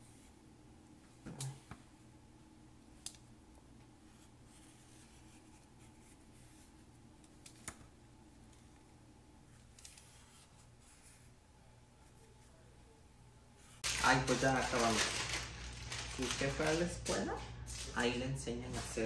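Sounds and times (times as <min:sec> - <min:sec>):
marker scratching on paper: 0:04.1 - 0:06.8.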